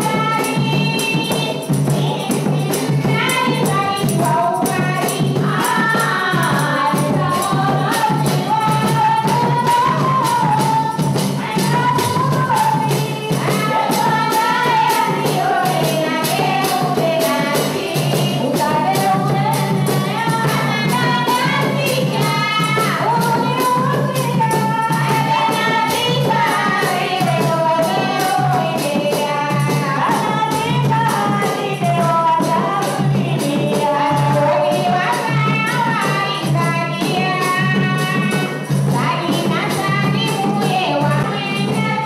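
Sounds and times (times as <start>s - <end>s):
drum beating: 0.0s - 42.0s
hand cymbals clashing: 0.0s - 42.0s.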